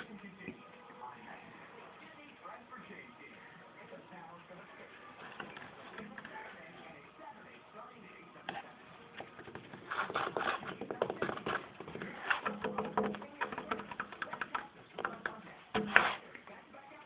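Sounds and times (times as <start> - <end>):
fingers tapping on wooden board: 9.2 - 16.1.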